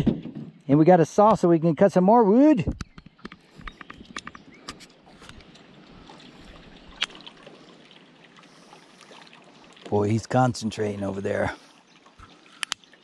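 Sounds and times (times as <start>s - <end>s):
river water lapping: 2.3s - 13.0s
small clicks and knocks: 2.7s - 6.3s.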